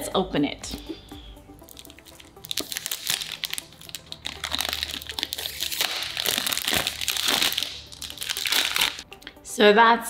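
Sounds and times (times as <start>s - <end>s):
cellophane wrap crinkling: 1.6s - 9.0s.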